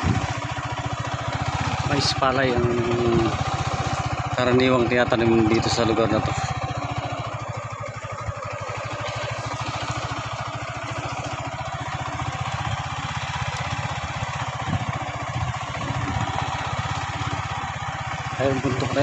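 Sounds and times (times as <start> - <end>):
small motorcycle engine running: 0.0 - 19.0.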